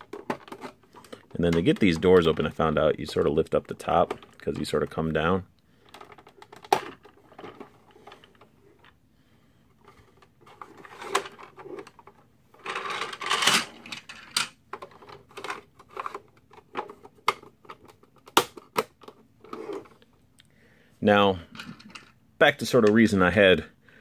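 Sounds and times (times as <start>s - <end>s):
plastic clicks and rattles: 0.0s - 2.5s, 10.2s - 20.0s.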